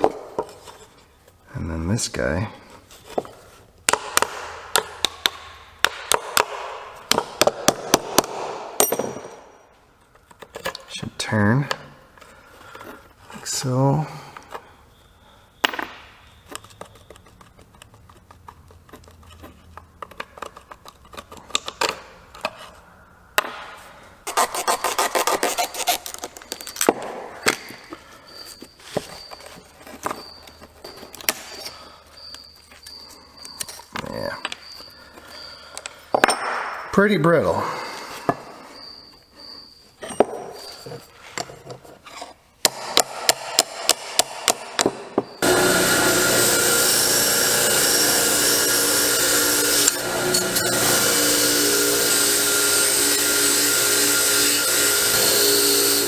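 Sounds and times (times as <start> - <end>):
metal spacers clicking and scraping: 24.2 - 36.3
grinder wire wheel rasping: 45.3 - 56.0.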